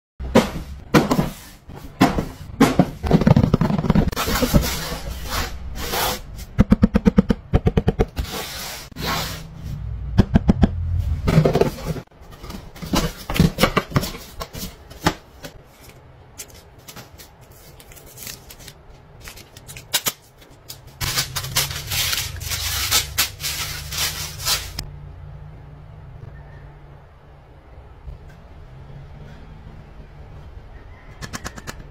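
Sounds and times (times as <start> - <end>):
plastic packaging rustling: 15.7 - 24.8.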